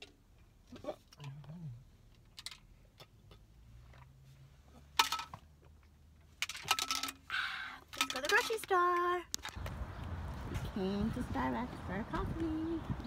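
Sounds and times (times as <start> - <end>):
plastic bottles clicking: 6.4 - 9.6.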